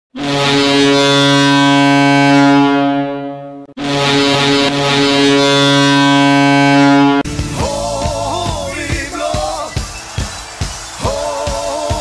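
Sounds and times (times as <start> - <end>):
goal horn blasts: 0.1 - 7.4.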